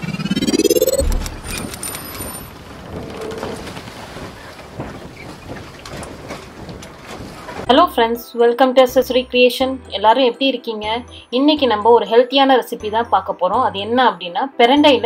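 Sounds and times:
low boom: 0:00.0 - 0:01.9
rising sweep: 0:00.0 - 0:02.5
scattered clicks: 0:00.6 - 0:02.5.

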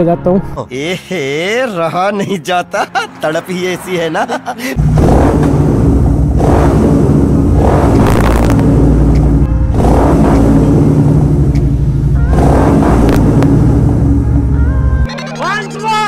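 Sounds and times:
loud motorcycle idling and revving: 0:04.8 - 0:14.6.

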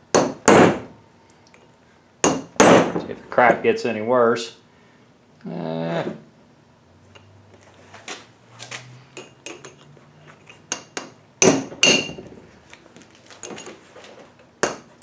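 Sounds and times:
metal-on-metal knocks and clinks: 0:09.2 - 0:09.9, 0:10.5 - 0:12.4, 0:13.4 - 0:13.8.

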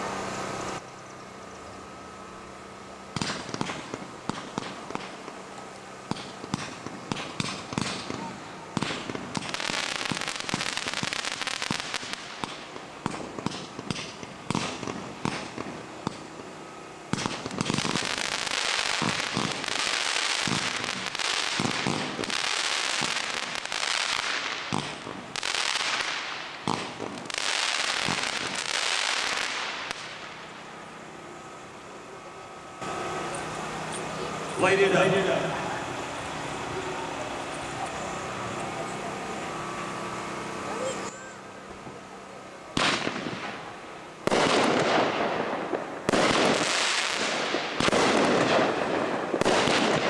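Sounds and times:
fireworks crackling: 0:02.3 - 0:50.0
fireworks popping: 0:03.1 - 0:16.4, 0:17.1 - 0:30.6, 0:42.7 - 0:50.0.

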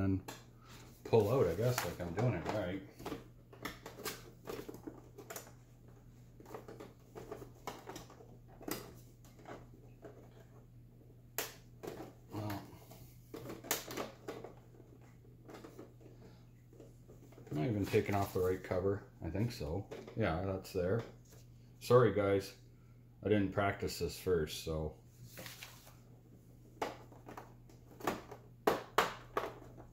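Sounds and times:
plastic cover clicking and creaking: 0:01.2 - 0:05.6, 0:06.4 - 0:10.6, 0:13.3 - 0:18.4.

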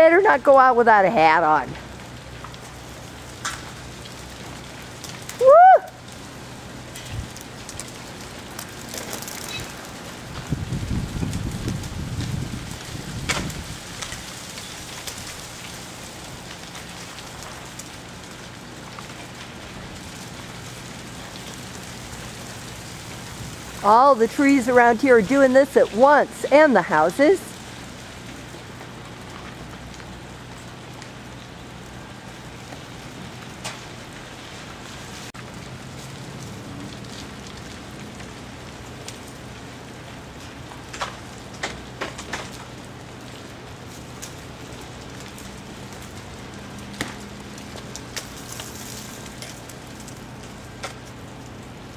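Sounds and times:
ice pieces pattering on snow: 0:02.4 - 0:51.9
sharp ticks of ice: 0:07.0 - 0:09.9.

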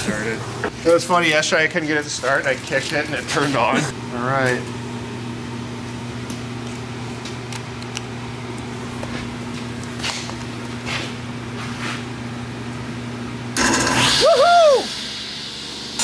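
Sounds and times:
low electrical hum: 0:00.0 - 0:16.0
loud burst of noise: 0:13.6 - 0:16.0.

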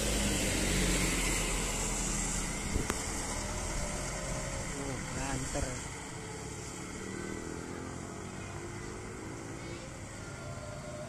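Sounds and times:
tyre hiss on wet road: 0:00.0 - 0:08.6
motorcycle engine: 0:00.0 - 0:11.0
passing vehicles engine hum: 0:00.0 - 0:11.0.

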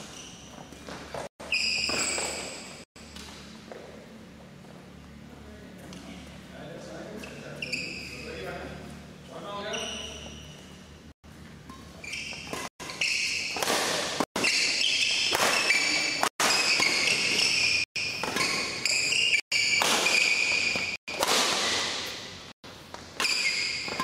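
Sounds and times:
shoes squeaking on court: 0:00.0 - 0:04.0, 0:05.8 - 0:24.0
rackets striking shuttlecock: 0:11.6 - 0:22.2.

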